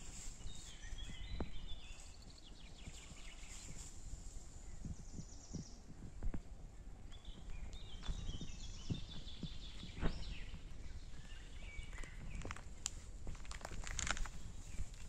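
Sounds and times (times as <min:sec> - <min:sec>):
footsteps on forest path: 0:07.1 - 0:15.0.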